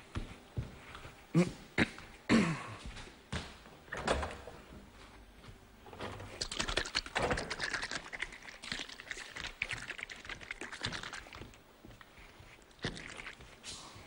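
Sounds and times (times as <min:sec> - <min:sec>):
clicking and rustling of kitchen items: 0:03.4 - 0:04.8, 0:05.8 - 0:08.6.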